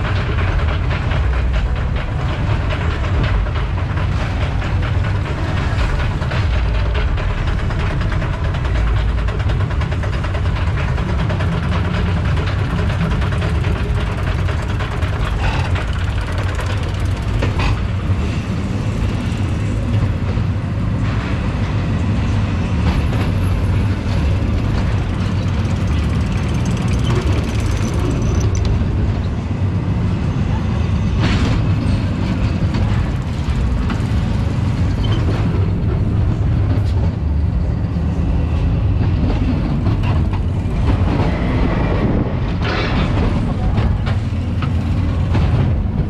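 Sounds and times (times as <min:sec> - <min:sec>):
coaster wheel rumble: 0:00.0 - 0:46.0
chain lift clatter: 0:02.7 - 0:18.0, 0:24.2 - 0:28.9.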